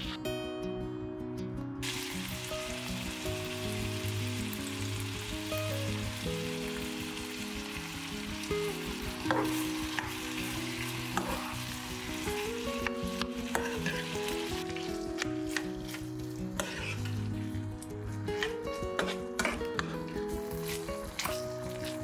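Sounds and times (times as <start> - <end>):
soft background music: 0.0 - 22.0
meat sizzling in a frying pan: 1.8 - 17.6, 20.2 - 22.0
metal spoon stirring: 13.5 - 17.3.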